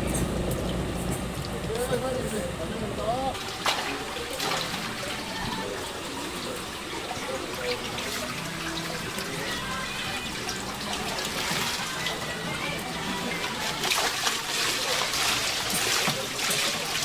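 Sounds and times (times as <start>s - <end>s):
water trickling and splashing: 3.3s - 17.0s
water streaming off mesh bag: 13.4s - 17.0s.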